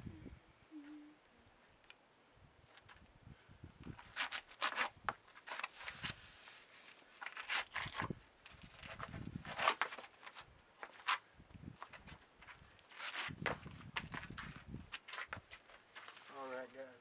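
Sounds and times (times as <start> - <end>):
shoes scraping on rock: 3.9 - 11.2, 11.8 - 16.6.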